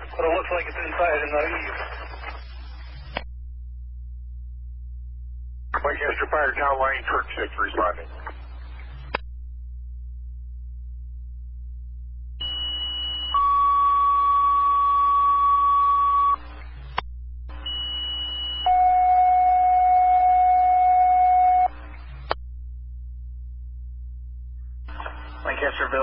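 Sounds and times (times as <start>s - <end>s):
radio squelch-tail click: 0.0s - 3.3s, 5.8s - 9.2s, 24.9s - 26.0s
low radio hum: 0.0s - 26.0s.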